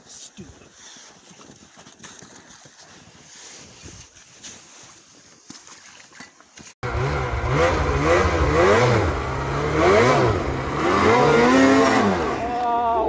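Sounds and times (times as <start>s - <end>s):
snowmobile engine revving: 6.8s - 13.0s.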